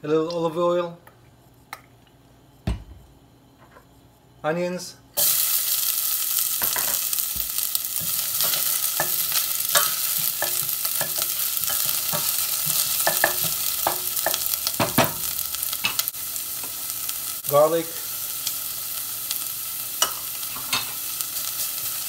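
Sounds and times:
onion sizzling in oil: 5.2s - 22.0s.

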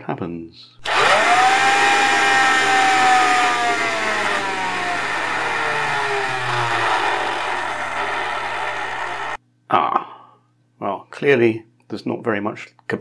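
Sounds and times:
handheld vacuum motor whine: 0.8s - 9.4s.

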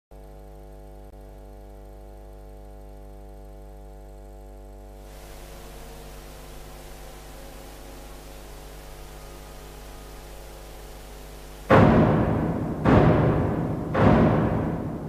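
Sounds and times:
electrical mains hum: 0.1s - 15.0s
broad hiss: 5.0s - 15.0s.

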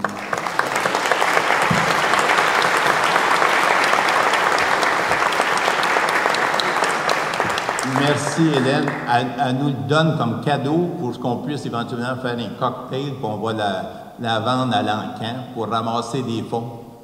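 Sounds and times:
audience applauding: 0.0s - 9.6s.

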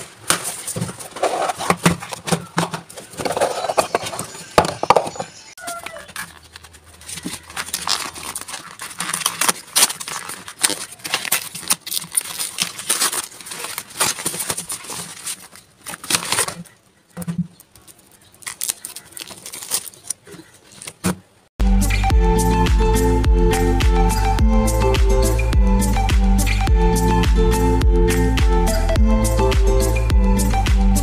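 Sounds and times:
plastic trays handled: 0.0s - 21.4s
paper package crinkling: 5.6s - 16.8s, 17.6s - 21.2s.

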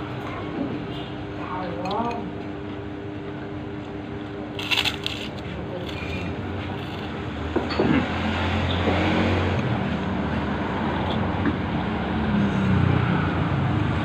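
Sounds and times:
road traffic passing: 6.2s - 14.0s.

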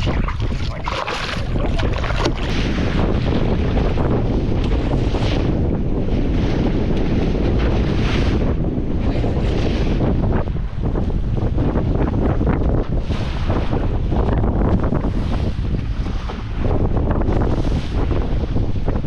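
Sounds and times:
fish splashing at surface: 0.0s - 2.6s
water splashing against boat: 0.0s - 19.0s
wind buffeting microphone: 0.0s - 19.0s.

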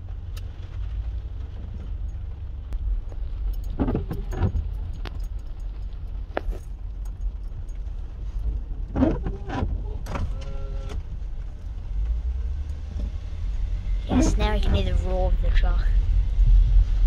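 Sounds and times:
small rattles and clicks: 0.0s - 10.2s
car cabin rumble: 0.0s - 17.0s.

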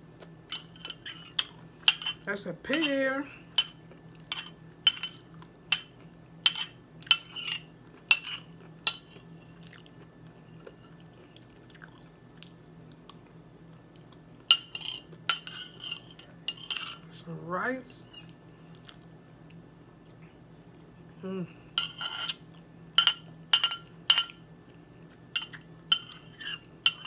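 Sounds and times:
metal spoon clinking on a plate: 3.6s - 9.2s, 23.0s - 24.4s, 25.4s - 27.0s
quiet chewing: 9.4s - 15.3s, 18.2s - 21.0s.

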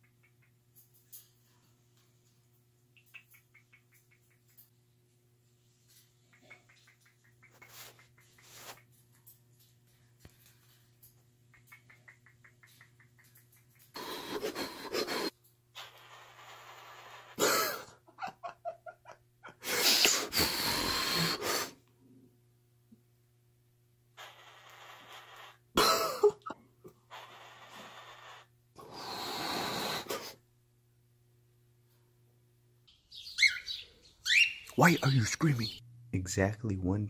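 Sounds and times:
birds hissing: 32.9s - 35.8s
harsh bird squawks: 33.1s - 35.8s.

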